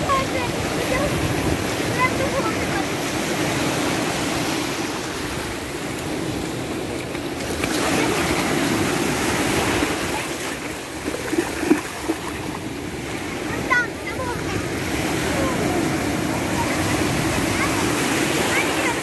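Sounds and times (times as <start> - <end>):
sea waves breaking: 0.0 - 19.0
child splashing in water: 7.4 - 12.6.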